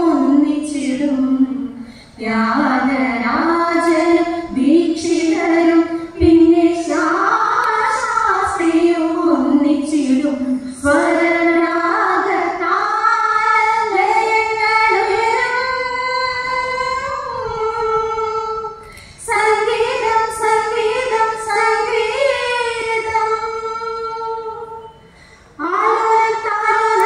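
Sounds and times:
women singing together: 0.0 - 18.6, 25.6 - 27.0.

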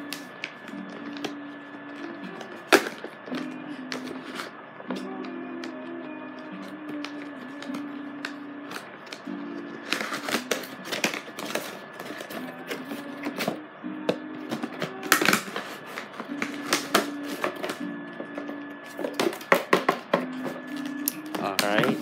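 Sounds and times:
background music: 0.0 - 22.0
packaging clicks and crackles: 9.8 - 13.6, 14.5 - 17.8.

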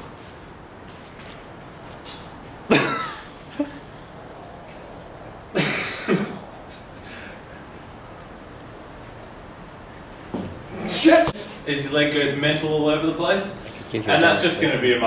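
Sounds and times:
man coughing: 2.7 - 3.9, 5.5 - 6.5.

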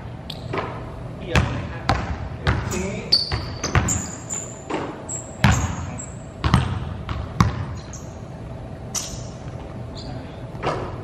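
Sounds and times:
sneaker squeaks: 0.3 - 0.8, 2.5 - 8.3, 8.9 - 11.0
basketballs bouncing on wooden floor: 1.3 - 7.8.

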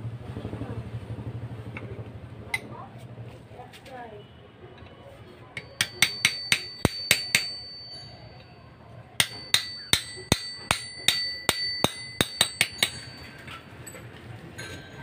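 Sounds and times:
steel rod striking metal: 5.6 - 8.2, 9.2 - 13.7.

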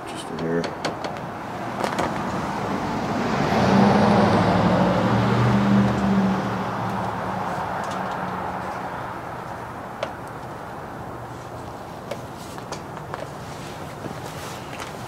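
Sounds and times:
vehicle driving past: 1.5 - 9.8.

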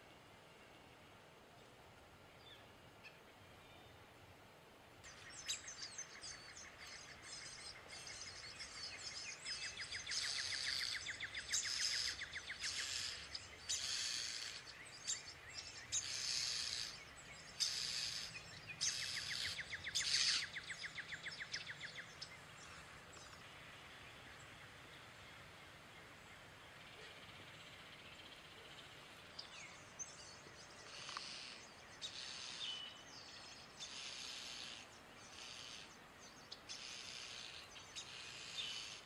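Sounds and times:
nestlings begging calls: 10.1 - 14.7, 15.9 - 21.0.

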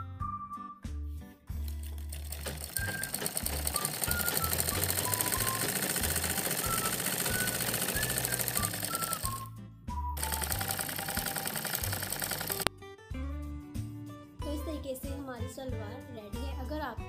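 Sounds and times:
sewing machine stitching: 1.6 - 9.5, 10.2 - 12.7.

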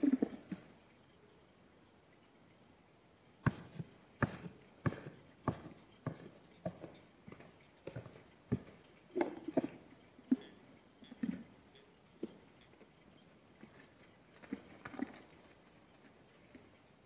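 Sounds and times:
hooves clip-clopping on stony ground: 3.5 - 17.0.

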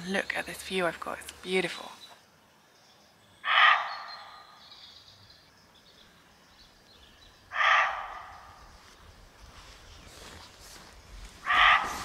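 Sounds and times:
deer barking: 3.4 - 4.4, 7.5 - 8.5, 11.4 - 12.0.

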